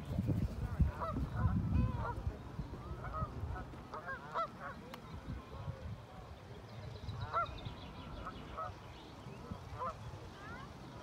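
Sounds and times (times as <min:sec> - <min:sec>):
waterbirds honking: 0:00.8 - 0:05.6, 0:07.1 - 0:10.7.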